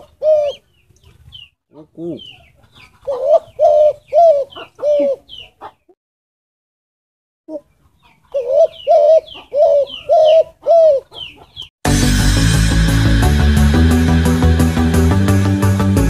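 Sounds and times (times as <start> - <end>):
dove cooing: 0.0 - 0.6, 1.8 - 5.8, 8.3 - 11.6
small birds chirping: 0.0 - 5.9, 7.5 - 11.7.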